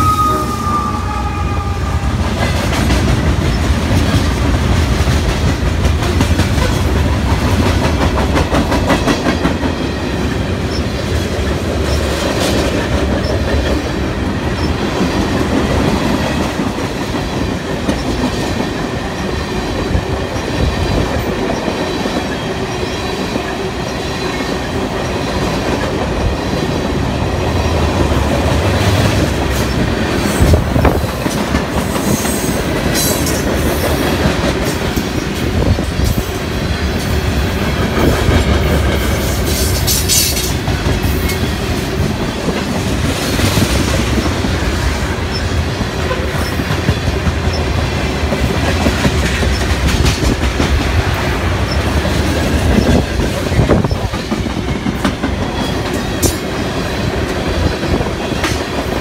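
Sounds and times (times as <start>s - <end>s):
high-pitched wheel squeals: 0.0s - 2.3s
freight train wheels clacking: 0.0s - 59.0s.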